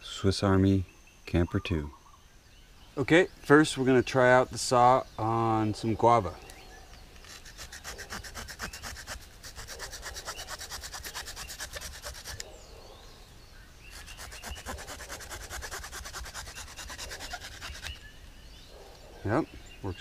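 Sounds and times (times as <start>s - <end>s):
saw blade rasping through wood: 7.2s - 12.5s, 13.9s - 18.1s.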